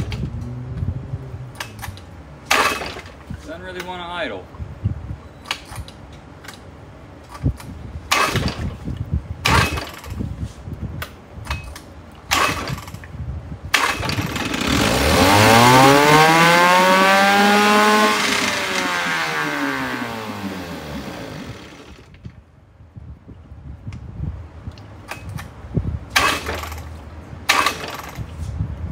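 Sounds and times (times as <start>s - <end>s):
outboard motor revving: 13.8s - 22.1s
clanks and knocks: 26.2s - 28.3s.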